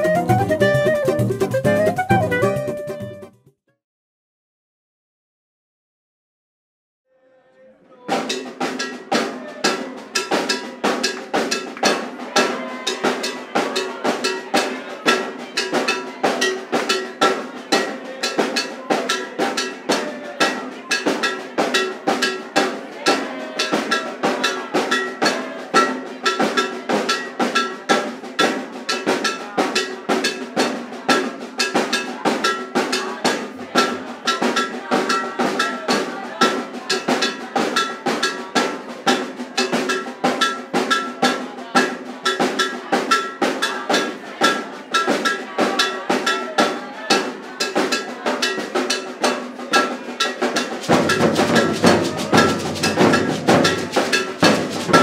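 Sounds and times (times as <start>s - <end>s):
drums in fast driving rhythm: 0.0s - 3.4s, 8.1s - 55.0s.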